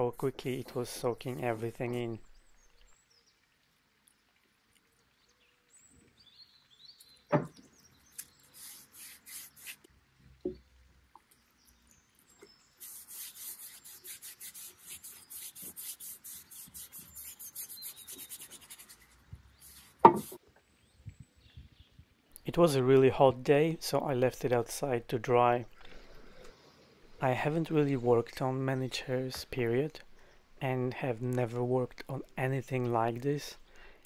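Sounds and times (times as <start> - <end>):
sharp knocks on wood: 7.3 - 7.6, 20.0 - 20.4
rubbing strokes on wood: 8.2 - 9.9, 12.8 - 20.4.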